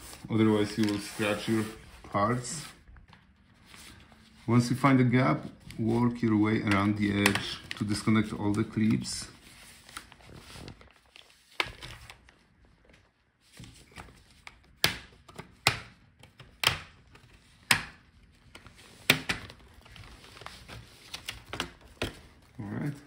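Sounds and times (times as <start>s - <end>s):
faint scraping and handling: 0.0s - 2.9s.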